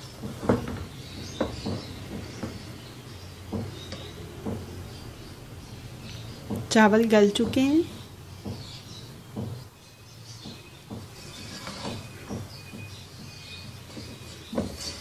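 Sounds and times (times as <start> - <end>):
spatula scraping and knocking pot: 0.0 - 4.8, 10.4 - 15.0.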